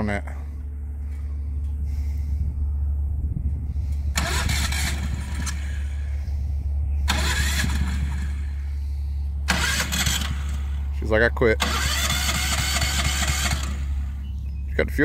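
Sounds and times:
engine pull-start bursts: 4.1 - 6.1, 7.1 - 8.7, 9.4 - 10.9, 11.6 - 14.2.

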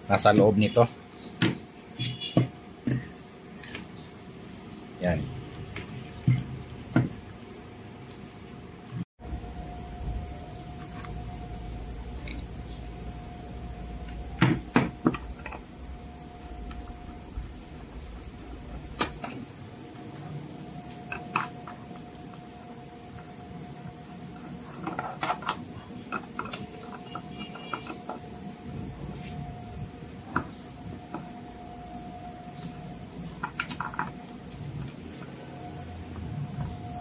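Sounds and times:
faint steady tone: 9.2 - 37.0.

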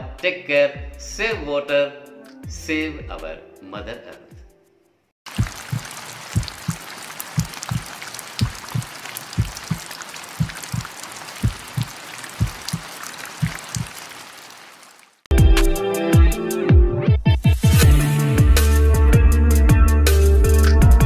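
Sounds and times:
hiss of falling water: 5.3 - 15.2
water dripping: 5.3 - 15.3
loud electronic music: 17.7 - 21.0.

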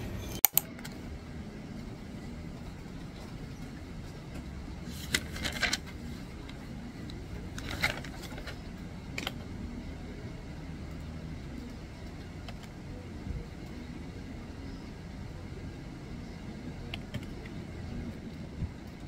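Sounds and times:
steady low hum: 0.0 - 19.0
paper pages rustling: 4.9 - 6.5, 7.5 - 9.4.

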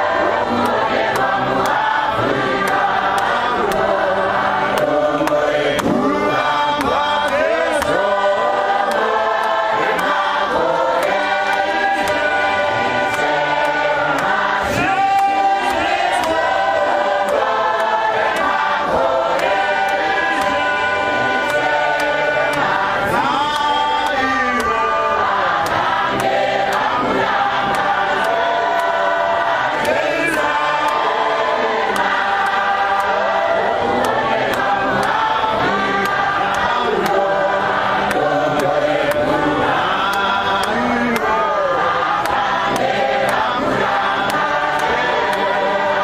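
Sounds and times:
congregation singing a hymn: 0.0 - 46.0
sharp steady clicks: 0.1 - 24.8, 25.5 - 46.0
man singing into a microphone: 4.8 - 9.0, 20.3 - 25.6, 38.2 - 42.2.

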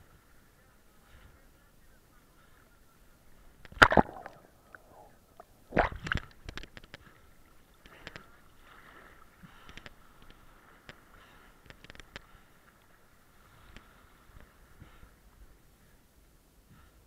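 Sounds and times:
water lapping: 0.0 - 16.0
water sloshing and splashing: 3.6 - 11.1
loud splashes: 3.8 - 4.4.

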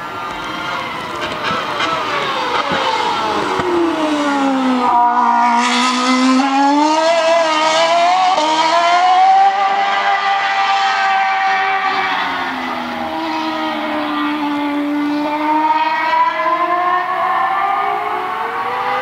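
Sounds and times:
racing car accelerating: 0.0 - 19.0
racing car engine downshifting: 0.0 - 19.0.

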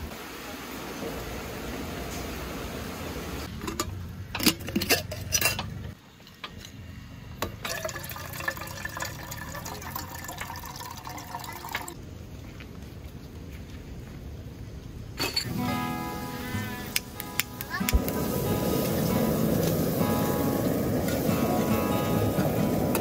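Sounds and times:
cups clinking: 7.4 - 12.0
liquid pouring into container: 7.6 - 12.0.

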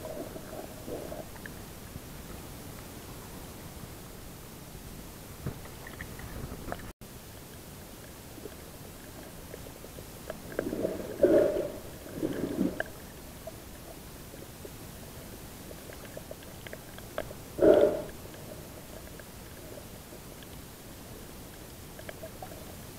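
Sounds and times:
muffled underwater wash: 0.0 - 22.9.

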